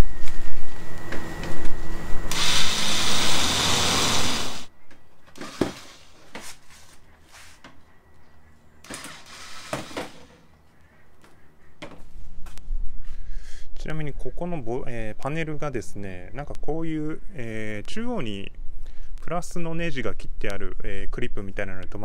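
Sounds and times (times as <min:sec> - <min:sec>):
electric screwdriver whirring: 0:02.3 - 0:04.7, 0:08.9 - 0:10.3.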